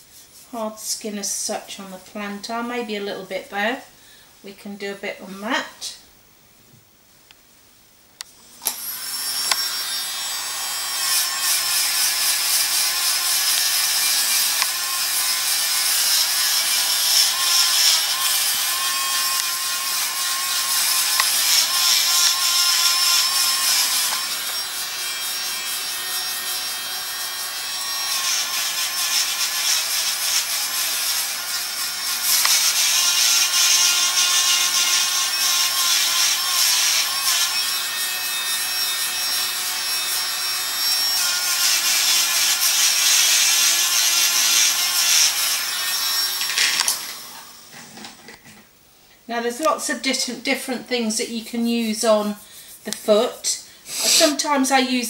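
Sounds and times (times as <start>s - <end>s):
nail drill whining: 8.4s - 48.5s, 51.2s - 54.9s.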